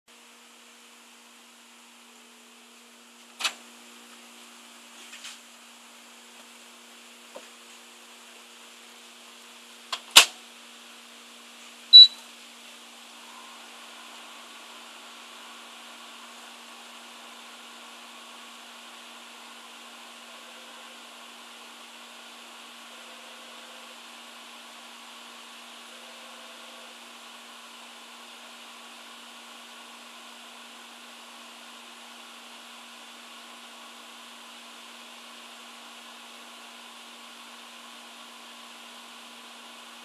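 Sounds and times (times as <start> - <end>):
microwave running hum: 0.1 - 40.0
keypad beep: 11.9 - 12.2.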